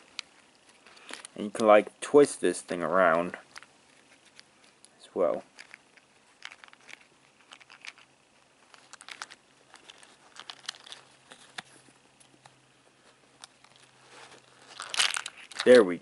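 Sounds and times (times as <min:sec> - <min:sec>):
plastic toy clicks and rustles: 0:05.4 - 0:08.1, 0:08.7 - 0:11.6.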